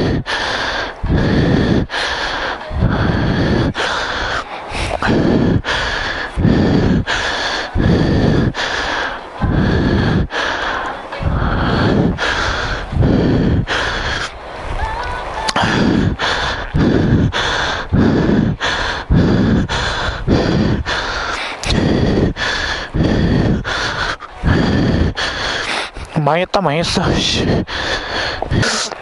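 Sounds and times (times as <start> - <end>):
person breathing heavily: 0.0 - 14.6, 15.5 - 26.3, 26.9 - 29.0.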